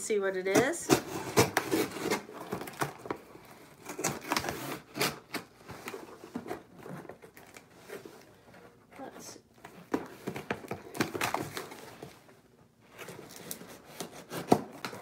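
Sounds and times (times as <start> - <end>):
packaging crinkling and tearing: 0.9 - 8.3, 9.6 - 12.2, 13.0 - 15.0.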